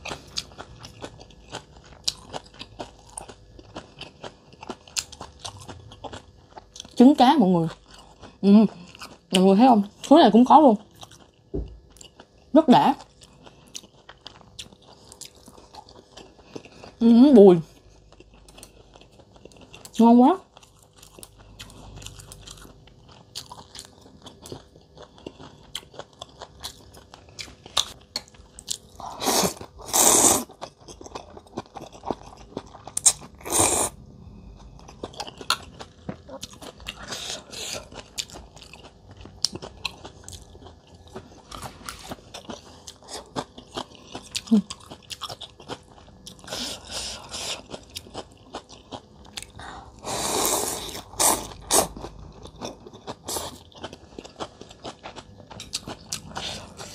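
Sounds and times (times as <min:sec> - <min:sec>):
chewing and crunching: 0:00.0 - 0:56.9
loud noodle slurps: 0:29.1 - 0:30.5, 0:33.4 - 0:34.0, 0:50.0 - 0:51.9.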